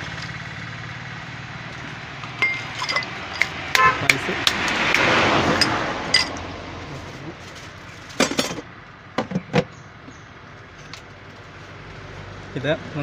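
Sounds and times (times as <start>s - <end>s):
ice and ladle clinking on glass: 2.3s - 3.9s.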